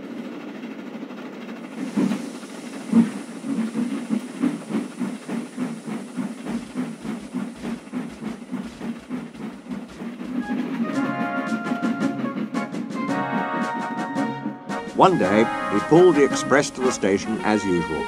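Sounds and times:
steam locomotive chuffing: 0.0s - 18.0s
steam hissing: 1.7s - 12.2s.

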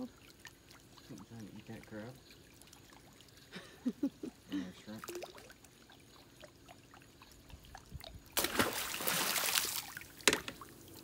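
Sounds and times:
water rushing and splashing: 8.4s - 10.3s.

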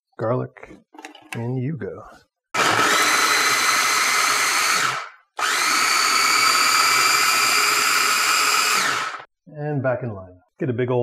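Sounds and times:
food chopper motor whine: 2.6s - 9.3s.

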